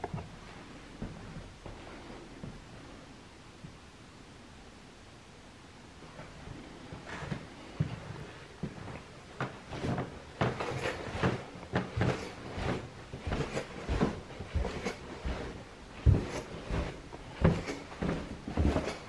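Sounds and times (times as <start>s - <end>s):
footsteps on carpeted stairs: 0.0s - 2.9s, 6.1s - 19.0s
heavy thump: 10.4s - 19.0s.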